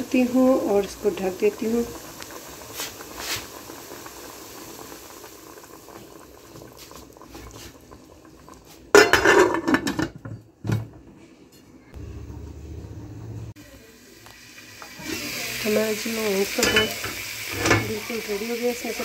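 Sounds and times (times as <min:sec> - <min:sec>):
liquid boiling gently in pot: 0:00.0 - 0:19.0
metal lid clattering onto pot: 0:08.9 - 0:10.5.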